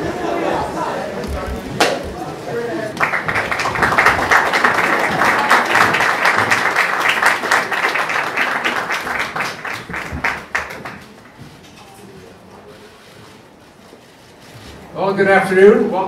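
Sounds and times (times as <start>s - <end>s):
audience applauding: 1.2s - 11.4s.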